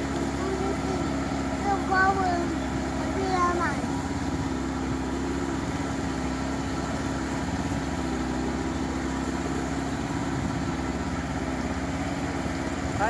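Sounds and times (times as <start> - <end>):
boat engine chugging: 0.0 - 13.0.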